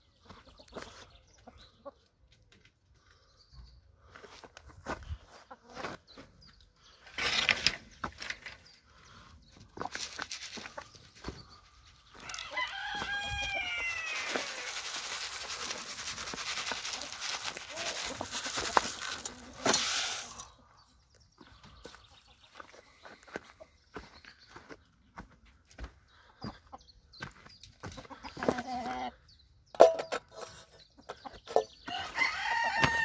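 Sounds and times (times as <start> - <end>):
hens clucking: 4.1 - 6.3, 8.0 - 20.8, 21.4 - 29.3
rooster crowing: 12.1 - 14.9, 31.9 - 33.0
rustling hiss: 13.9 - 20.5.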